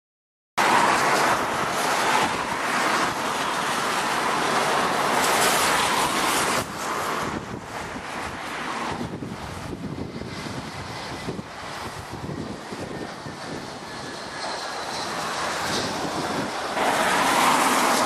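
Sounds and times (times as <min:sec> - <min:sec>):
strong wind buffeting microphone: 0:00.6 - 0:18.0.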